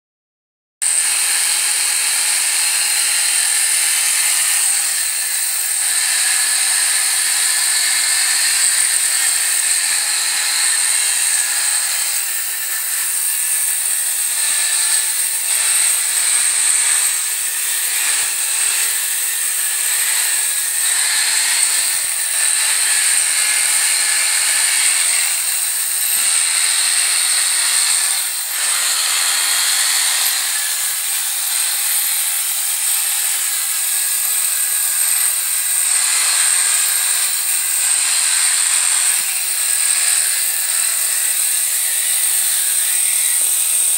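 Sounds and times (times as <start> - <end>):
electric clippers shearing: 0.8 - 43.9.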